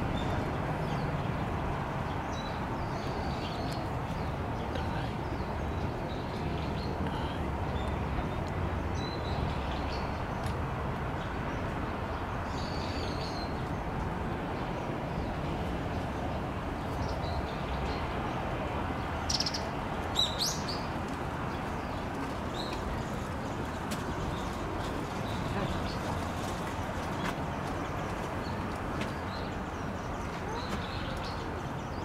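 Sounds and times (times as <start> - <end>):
small birds chirping: 2.0 - 32.0.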